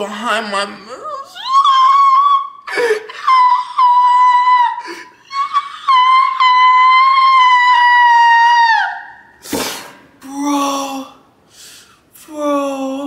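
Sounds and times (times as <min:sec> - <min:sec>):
sharp breath: 0:11.5 - 0:12.1.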